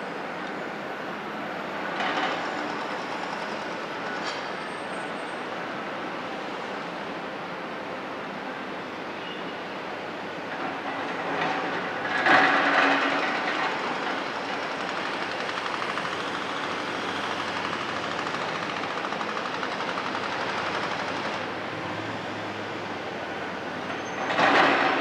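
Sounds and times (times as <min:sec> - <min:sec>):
heavy machinery rattling: 0:10.5 - 0:21.5, 0:24.0 - 0:25.0.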